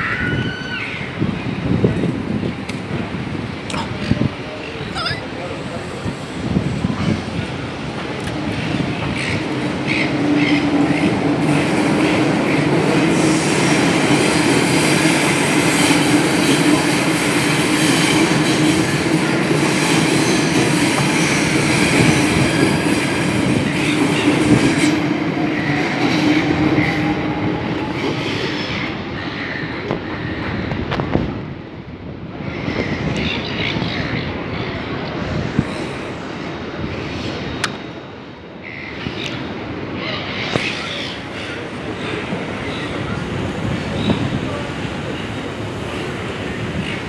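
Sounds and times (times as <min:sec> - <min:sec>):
train hum: 0:00.0 - 0:47.0
train wheels rumbling on rail: 0:00.0 - 0:47.0.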